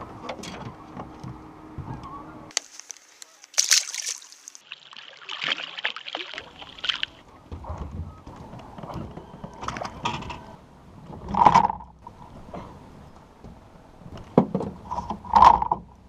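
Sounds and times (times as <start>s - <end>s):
fish splashing at surface: 2.5s - 7.2s.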